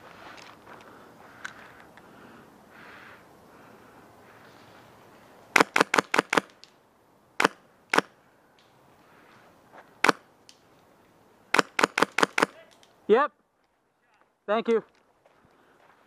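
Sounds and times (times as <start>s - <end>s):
airsoft rifle shots: 5.6s - 6.6s, 7.4s - 8.1s, 10.0s - 10.2s, 11.5s - 12.7s.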